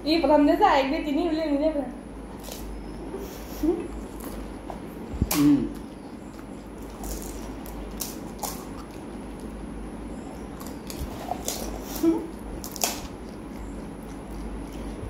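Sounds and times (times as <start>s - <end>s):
wet mouth sounds: 5.2s - 7.6s
crisp shells crunching: 6.8s - 9.5s.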